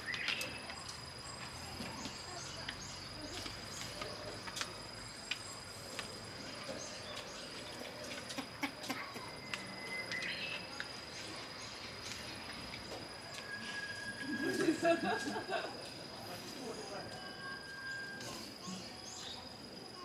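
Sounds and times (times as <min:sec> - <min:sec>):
bird chirp: 0:00.0 - 0:04.4, 0:09.2 - 0:12.5
high-pitched insect trill: 0:00.0 - 0:20.0.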